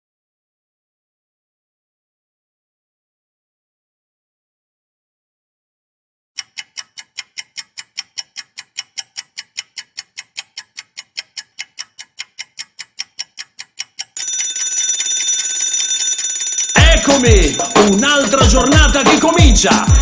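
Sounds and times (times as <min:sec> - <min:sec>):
clock ticking: 0:06.4 - 0:20.0
alarm clock bell ringing: 0:14.2 - 0:20.0.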